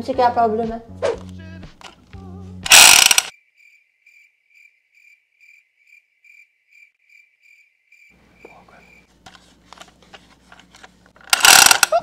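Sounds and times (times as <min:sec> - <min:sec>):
loud burst of noise: 0:02.7 - 0:03.3, 0:11.3 - 0:11.9
cricket chirping: 0:02.7 - 0:09.1.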